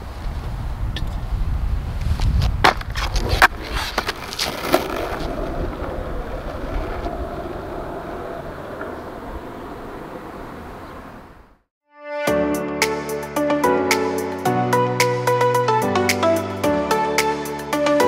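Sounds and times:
skateboard wheels rolling: 0:00.2 - 0:11.6
skateboard clacks: 0:02.6 - 0:10.5.

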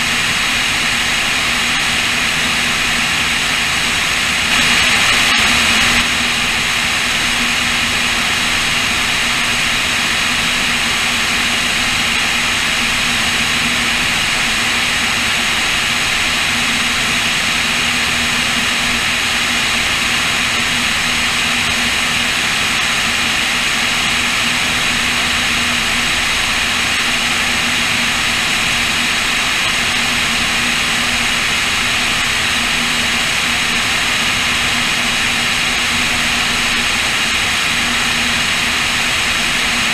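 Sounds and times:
propeller plane engines droning: 0:00.0 - 0:39.9
airflow rushing: 0:04.2 - 0:06.7.

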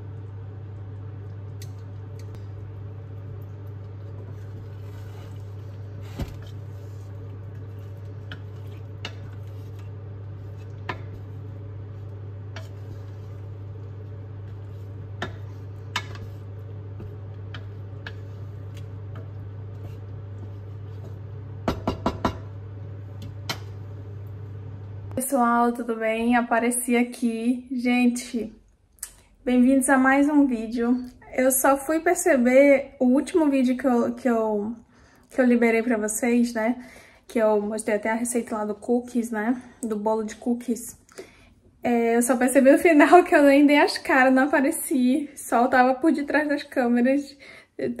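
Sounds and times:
steady low hum: 0:00.0 - 0:25.4.

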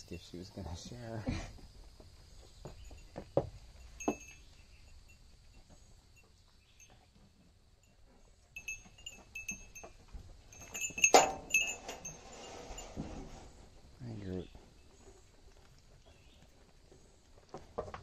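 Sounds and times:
small bell tinkling: 0:02.7 - 0:07.2, 0:07.8 - 0:12.9.

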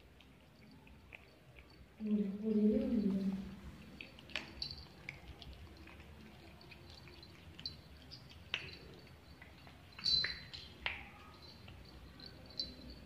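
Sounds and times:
kibble clicking on tile floor: 0:00.0 - 0:02.0, 0:03.4 - 0:13.0.

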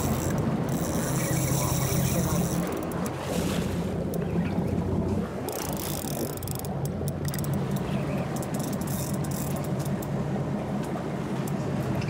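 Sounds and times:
fishing reel drag clicking: 0:00.0 - 0:03.2, 0:05.5 - 0:10.1
boat engine hum: 0:00.0 - 0:12.0.

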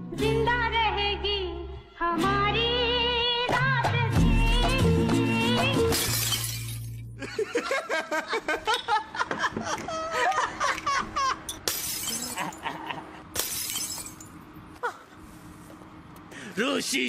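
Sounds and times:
glass smashing on pavement: 0:05.9 - 0:07.1, 0:11.5 - 0:14.4
men laughing loudly: 0:07.2 - 0:11.5, 0:12.3 - 0:13.2.

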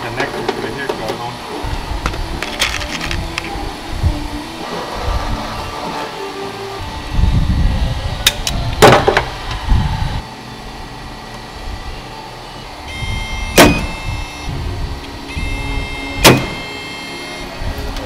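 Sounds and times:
motor whine: 0:01.2 - 0:18.0
rumbling: 0:01.7 - 0:06.2
metallic clunks: 0:16.2 - 0:16.7.

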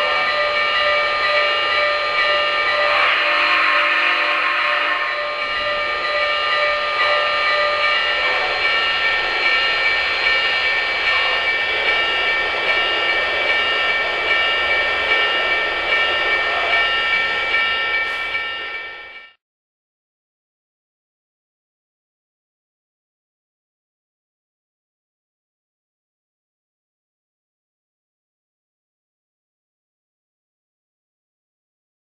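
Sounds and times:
high whining tones: 0:00.0 - 0:19.2.

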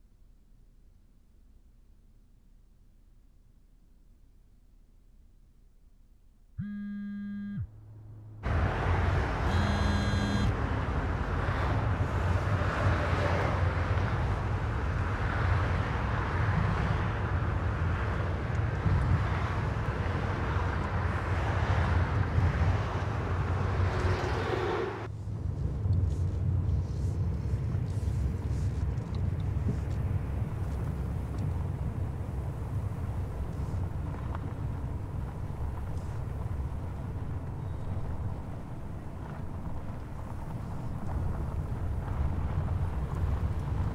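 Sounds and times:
car road and engine noise: 0:00.2 - 0:43.9
short steady tone: 0:06.6 - 0:07.8, 0:09.5 - 0:10.5.

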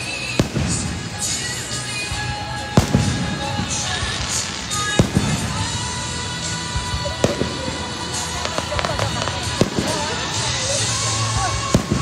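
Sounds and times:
music playing: 0:00.0 - 0:12.0
firework shells bursting: 0:07.2 - 0:12.0.

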